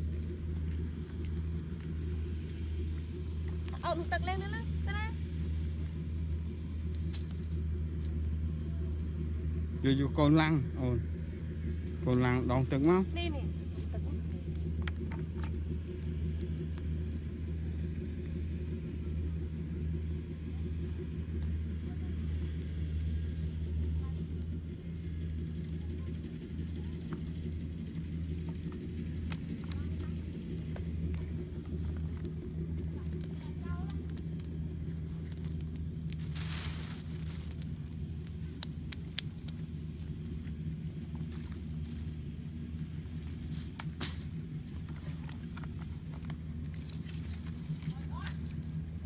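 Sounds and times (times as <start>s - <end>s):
low hum: 0.0s - 49.0s
steady low rumble: 0.0s - 49.0s
wood fire crackles: 0.0s - 49.0s
rustling: 35.1s - 38.0s.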